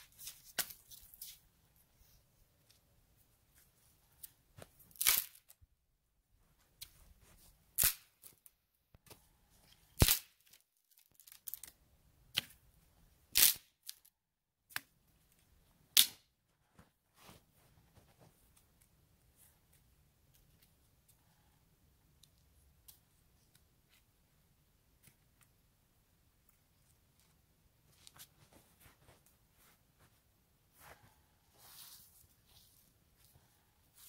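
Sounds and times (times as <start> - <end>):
sharp crunches and snaps: 4.6 - 5.6, 7.8 - 9.2, 9.9 - 12.6, 13.3 - 14.1.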